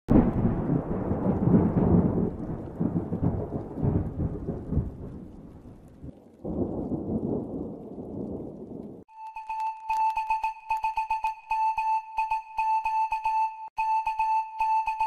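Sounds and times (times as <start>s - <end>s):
thunder rumbling crash: 0.1s - 9.1s.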